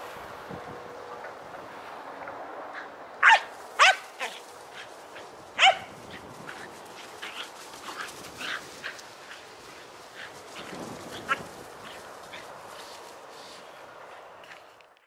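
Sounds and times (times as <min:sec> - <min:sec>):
dogs yipping: 0:03.2 - 0:04.9, 0:05.6 - 0:06.2
dogs barking: 0:03.2 - 0:06.0.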